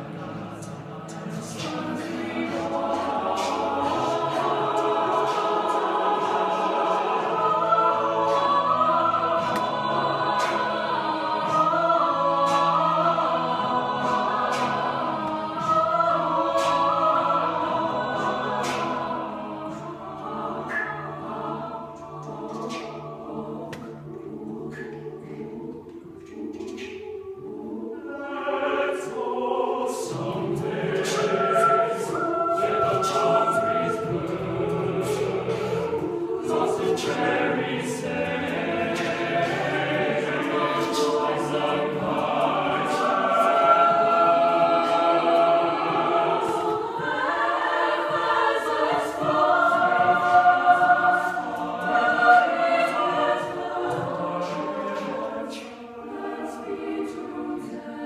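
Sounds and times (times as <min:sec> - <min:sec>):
choir singing a cappella: 0:00.0 - 0:58.0
vocal percussion clicks: 0:20.6 - 0:21.3, 0:21.9 - 0:27.2.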